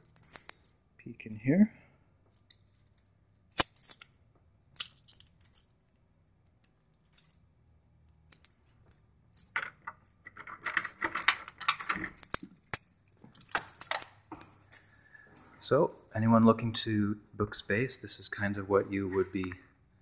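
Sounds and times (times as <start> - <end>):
keys jangling: 0.0 - 0.8, 2.3 - 4.2, 4.8 - 6.0, 6.6 - 7.4, 8.3 - 16.2.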